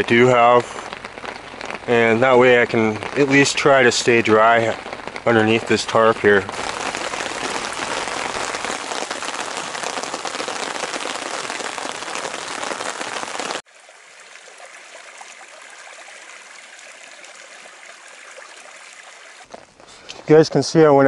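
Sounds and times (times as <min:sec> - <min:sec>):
rain pattering on a tarp: 0:00.0 - 0:21.0
stream rushing over rocks: 0:06.5 - 0:19.5.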